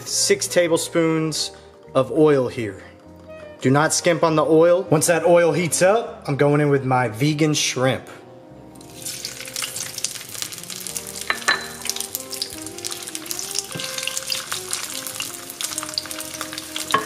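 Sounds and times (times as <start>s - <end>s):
food sizzling in hot oil: 8.8s - 17.0s.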